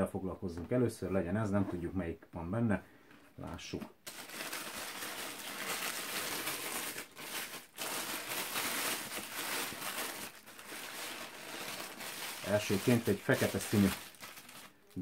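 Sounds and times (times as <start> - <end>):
tissue paper rustling: 4.1 - 15.0.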